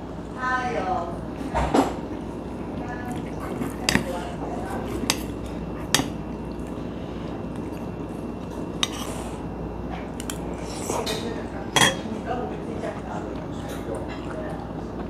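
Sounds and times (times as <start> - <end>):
spoon clinking on metal bowl: 11.7 - 12.1.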